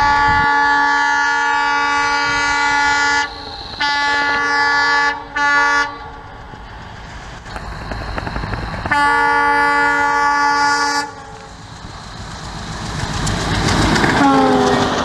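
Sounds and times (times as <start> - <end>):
locomotive horn blast: 0.0 - 6.2, 8.9 - 11.5, 14.2 - 15.0
locomotive running noise: 0.0 - 15.0.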